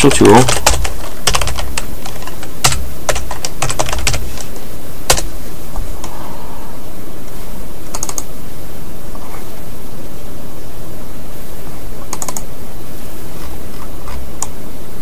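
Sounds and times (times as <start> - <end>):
computer keyboard typing: 0.0 - 4.5, 5.1 - 5.3, 7.9 - 8.3, 12.1 - 12.5
steady hiss: 0.0 - 15.0.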